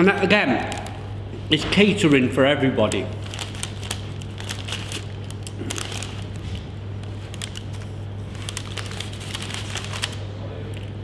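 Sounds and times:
steady low hum: 0.0 - 11.0
clicks and crackles of eating: 2.8 - 11.0.

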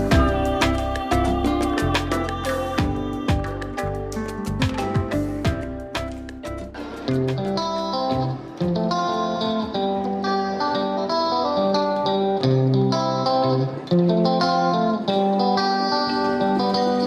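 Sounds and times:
plucked guitar melody: 0.0 - 17.0.

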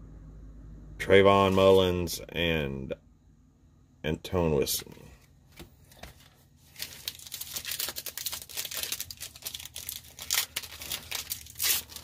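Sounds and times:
foil wrapper crinkling: 5.9 - 12.0.

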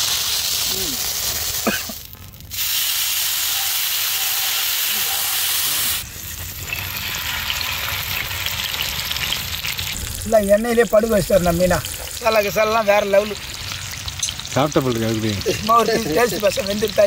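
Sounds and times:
fish frying in hot oil: 0.0 - 17.0.

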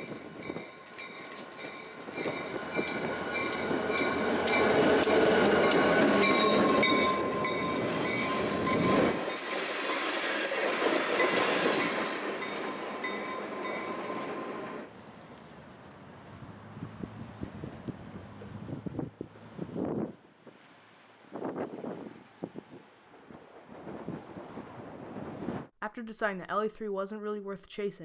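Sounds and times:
wheels clicking over rail joints: 0.0 - 9.5
high ringing tones: 6.2 - 10.1.

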